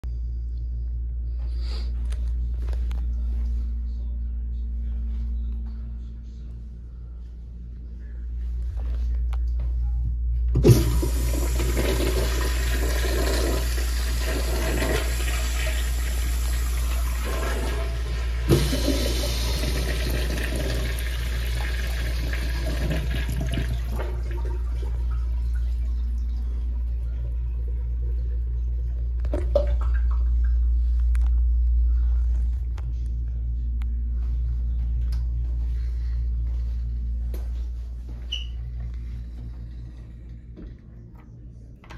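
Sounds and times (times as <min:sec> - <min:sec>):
low hum: 0:00.0 - 0:41.9
urinal flushing water rush: 0:10.6 - 0:28.6
faint water trickle: 0:20.3 - 0:31.4.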